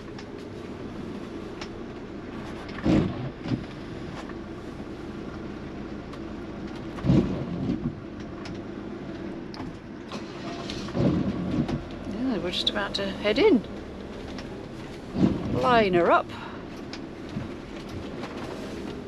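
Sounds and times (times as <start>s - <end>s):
diesel engine idling: 0.0s - 19.0s
low thumps: 13.3s - 16.2s.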